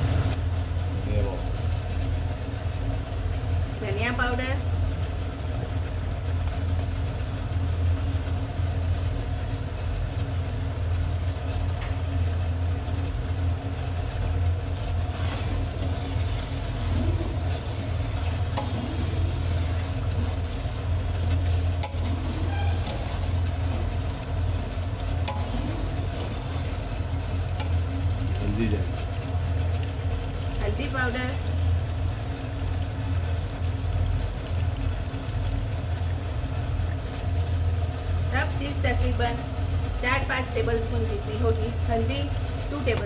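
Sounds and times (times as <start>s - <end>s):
sauce sizzling in a pot: 0.0s - 43.0s
steady low hum: 0.0s - 43.0s
spoon stirring: 14.8s - 28.4s.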